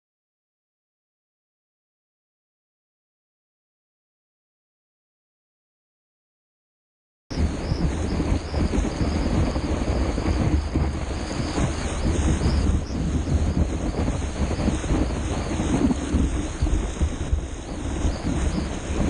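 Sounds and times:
breaking surf rushing: 7.3s - 19.0s
rumbling wind noise: 7.3s - 19.0s.

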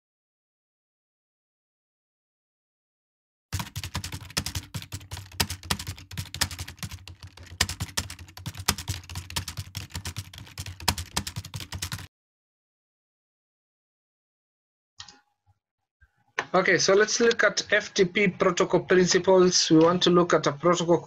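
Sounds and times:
rapid typing on keyboard: 3.6s - 12.1s.

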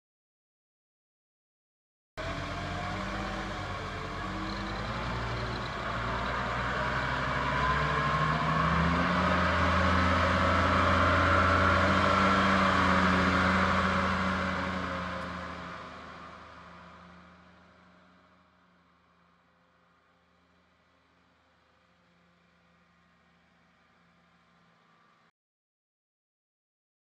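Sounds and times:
forklift engine running: 2.2s - 19.1s.

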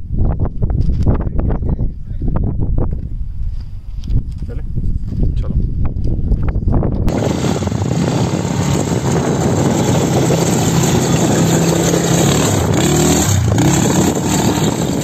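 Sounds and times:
quad bike engine revving: 7.1s - 15.0s.

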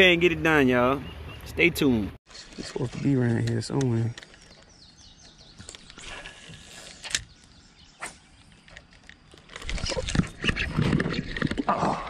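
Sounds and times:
bird chirping: 0.0s - 2.7s, 3.6s - 11.6s
sharp clicks: 7.0s - 7.5s.

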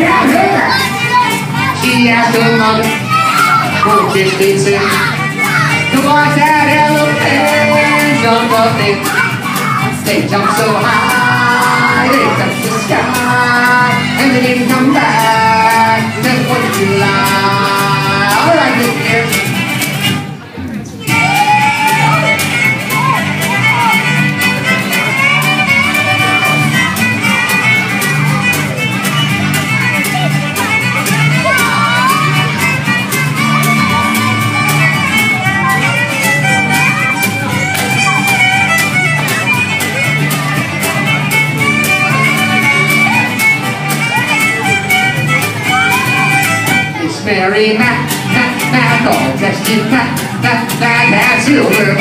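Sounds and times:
fiddle melody: 0.0s - 52.0s
strummed acoustic guitar: 0.0s - 52.0s
pulsing electric bass: 21.1s - 47.0s.

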